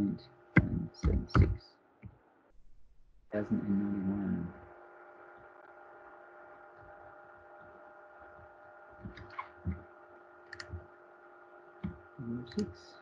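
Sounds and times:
low electrical hum: 0.0 - 13.0
stylus tapping on tablet: 0.6 - 2.2.

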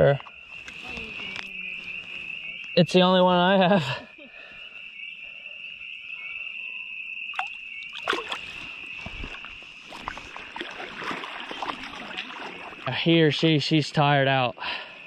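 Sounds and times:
water sloshing and splashing: 7.3 - 13.4.

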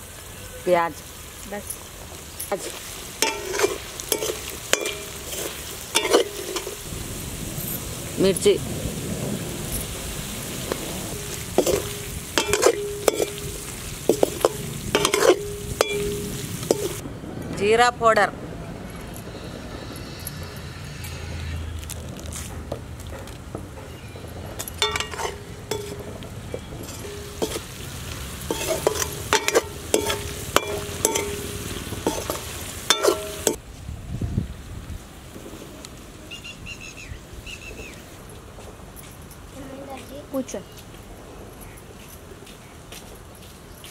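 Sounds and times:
potatoes sizzling in oil: 0.0 - 17.0, 24.8 - 33.6
metal spoon scraping pan: 2.5 - 6.9, 11.1 - 17.0, 24.6 - 33.6
spoon knocking metal pan: 2.6 - 6.8, 11.2 - 17.0, 24.6 - 33.6.

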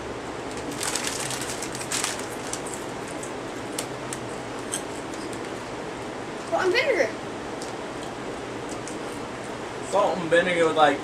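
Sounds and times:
chip bag crinkling: 0.5 - 4.3
people chewing crunchy chips: 0.5 - 4.3.

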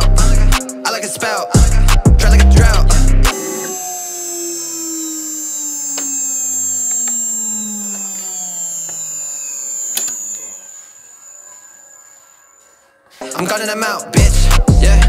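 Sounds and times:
router spindle winding down: 3.3 - 12.8
steady high-pitched whine: 3.3 - 13.3.

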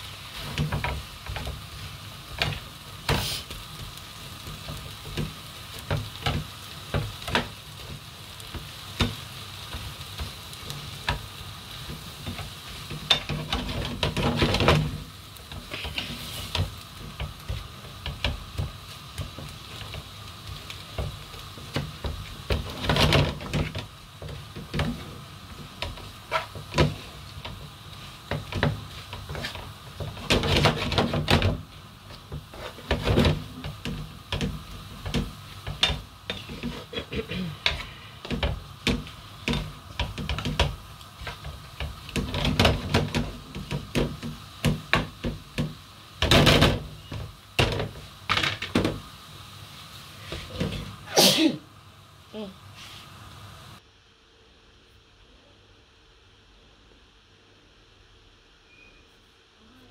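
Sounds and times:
food sizzling in a frying pan: 0.0 - 54.2
spatula scraping a pan: 4.4 - 45.2, 50.2 - 51.1.

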